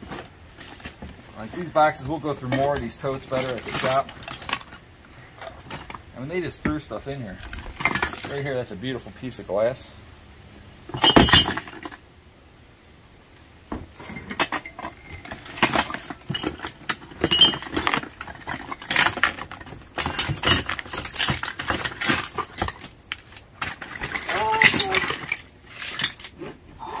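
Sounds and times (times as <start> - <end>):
glassware clinking in plastic tote: 2.3 - 4.7, 10.9 - 12.0, 14.0 - 26.2.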